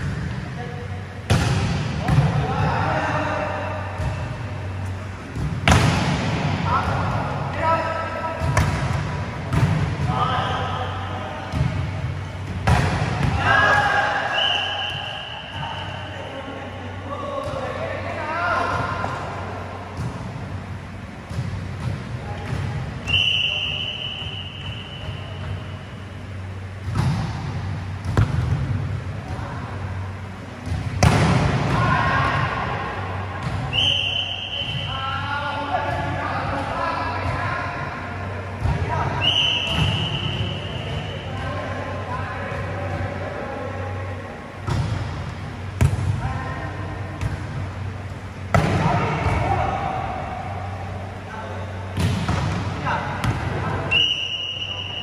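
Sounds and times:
low steady hum: 0:00.0 - 0:55.0
volleyball being struck: 0:05.4 - 0:06.7, 0:30.6 - 0:31.8
high steady whistle tone: 0:14.3 - 0:16.5, 0:23.0 - 0:25.9, 0:33.7 - 0:35.0, 0:39.2 - 0:41.3, 0:53.9 - 0:55.0.

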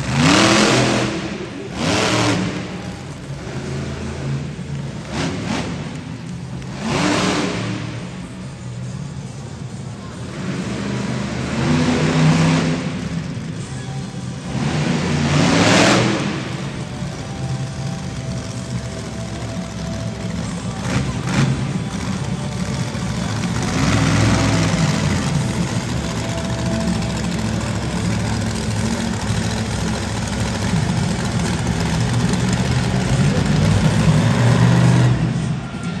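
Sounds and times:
truck engine accelerating hard: 0:00.0 - 0:36.0.

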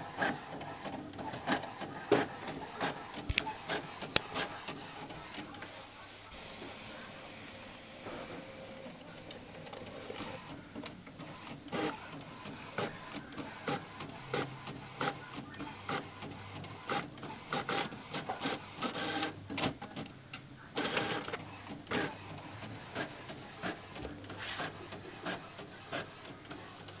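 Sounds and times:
print head clicks and clacks: 0:00.0 - 0:05.8
inkjet printer printing: 0:00.0 - 0:27.0.

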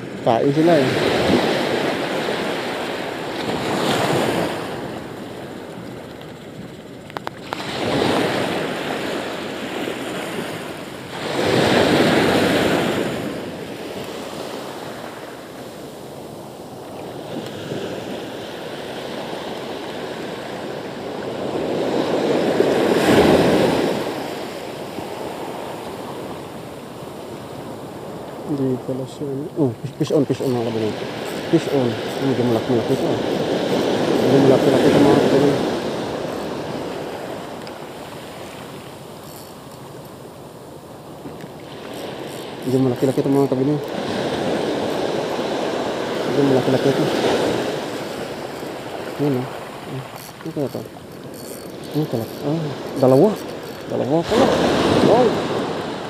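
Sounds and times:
small waves breaking on shore: 0:00.0 - 0:56.0
wind on microphone: 0:29.6 - 0:40.3.

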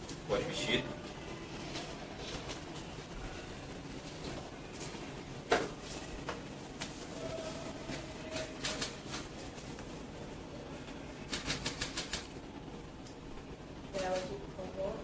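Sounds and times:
low room noise: 0:00.0 - 0:15.0.

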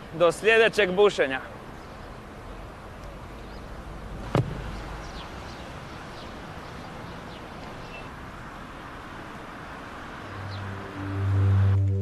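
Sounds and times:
football being kicked: 0:04.3 - 0:04.7
faint bird chirps: 0:07.8 - 0:08.2.

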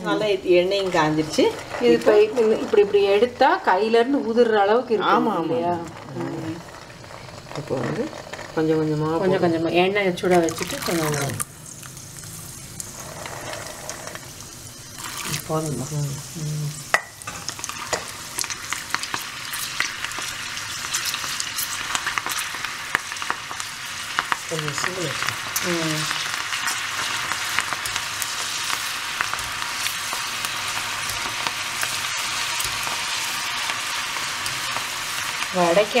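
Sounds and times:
oil sizzling with crackling pops: 0:00.0 - 0:36.0
skimmer stirring bubbling oil: 0:10.1 - 0:16.3, 0:16.9 - 0:36.0.

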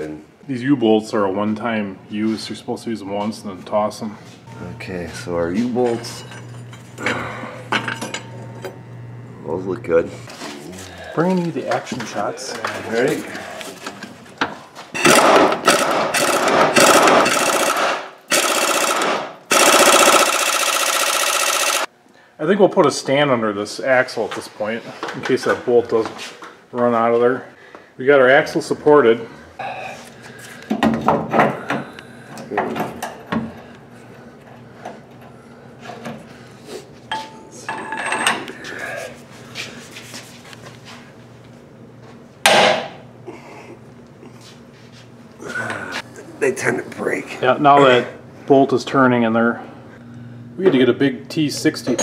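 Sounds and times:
impact wrench hammering on bolt: 0:15.0 - 0:21.9.

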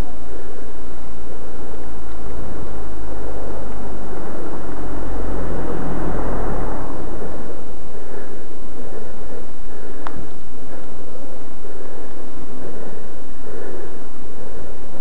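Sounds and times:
low rumble: 0:00.0 - 0:15.0
wind rushing on microphone: 0:00.0 - 0:15.0
car passing: 0:01.5 - 0:10.0.

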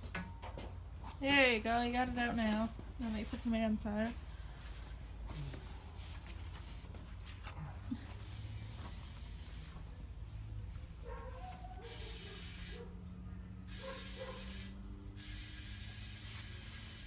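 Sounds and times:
compressed air hissing into tire: 0:05.3 - 0:07.0, 0:07.9 - 0:10.8, 0:11.8 - 0:13.0, 0:13.6 - 0:17.0.

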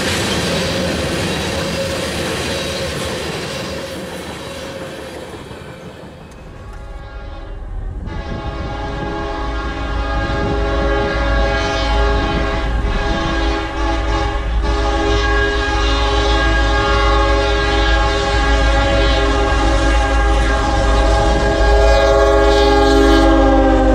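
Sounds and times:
low rumble of train: 0:00.0 - 0:23.9
locomotive air horn chord: 0:06.6 - 0:23.9.

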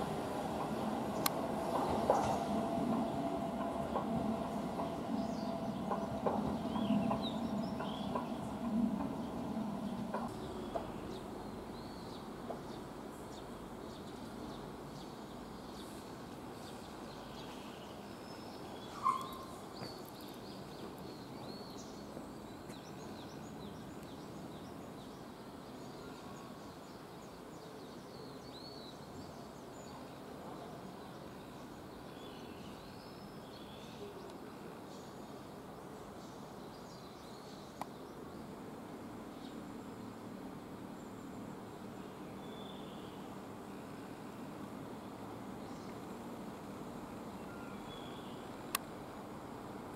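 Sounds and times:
outdoor background noise: 0:00.0 - 0:49.9
small birds chirping: 0:00.6 - 0:16.0.

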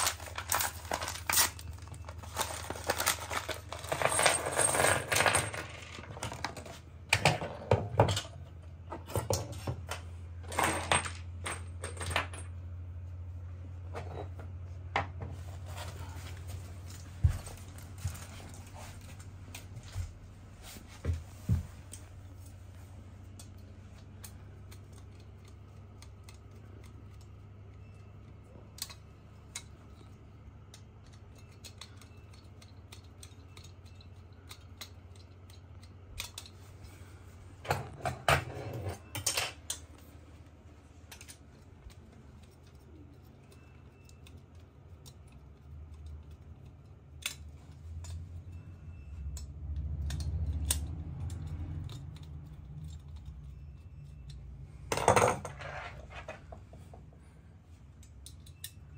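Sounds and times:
screwdriver clicks and rattles: 0:23.3 - 0:28.1, 0:28.7 - 0:36.6, 0:49.3 - 0:54.4.

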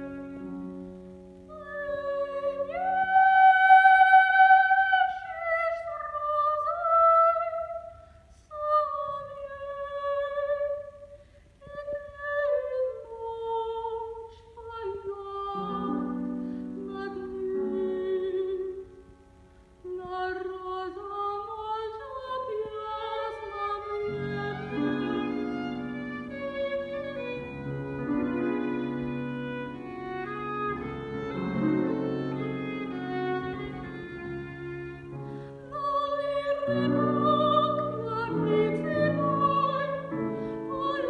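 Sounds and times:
soprano singing art song: 0:00.0 - 0:41.0
violin playing: 0:22.9 - 0:41.0.

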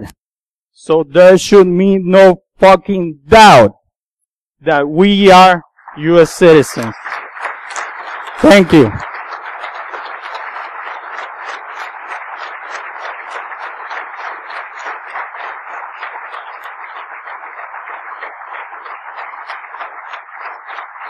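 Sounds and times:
audience applauding: 0:05.1 - 0:21.0.

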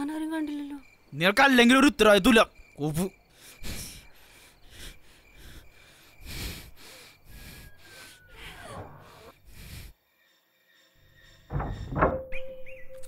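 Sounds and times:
man breathing heavily: 0:03.3 - 0:11.8.

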